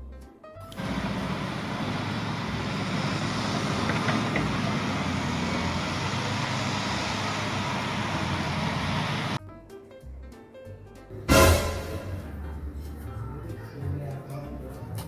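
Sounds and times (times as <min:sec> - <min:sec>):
excavator diesel engine running: 0:00.7 - 0:09.4.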